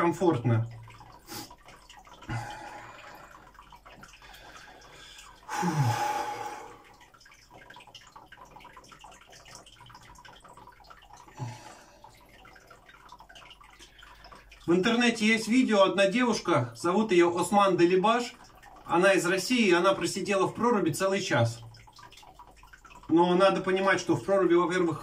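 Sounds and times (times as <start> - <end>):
water movement and drips: 0.0 - 25.0
man breathing: 4.2 - 6.9
long breathy sigh: 5.5 - 6.8
low throat sounds: 5.5 - 6.9.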